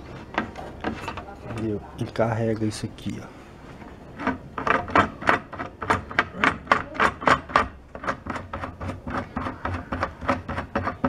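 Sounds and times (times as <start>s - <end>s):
block clicking along threaded rod: 4.2s - 11.0s.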